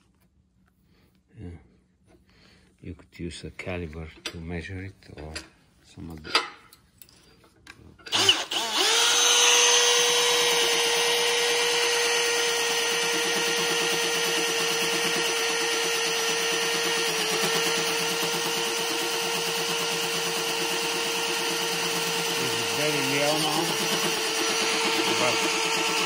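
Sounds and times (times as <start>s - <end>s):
cordless drill whining: 8.0s - 26.0s.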